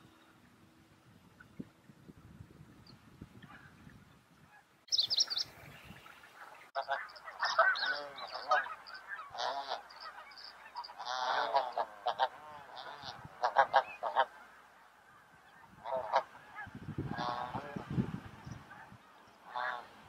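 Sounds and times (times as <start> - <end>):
geese honking: 6.2 - 18.0, 18.6 - 20.0.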